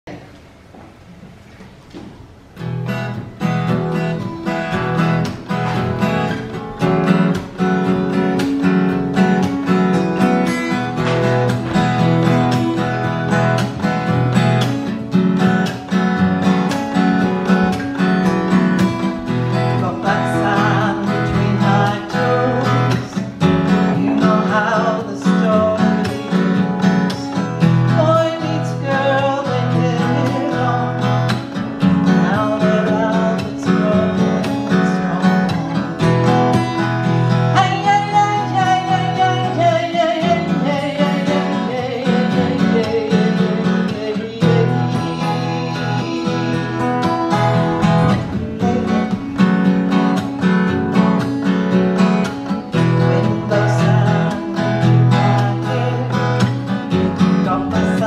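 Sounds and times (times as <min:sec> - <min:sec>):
acoustic guitars playing: 0:00.0 - 0:58.0
woman singing: 0:19.7 - 0:26.3, 0:37.5 - 0:49.5, 0:52.8 - 0:56.7.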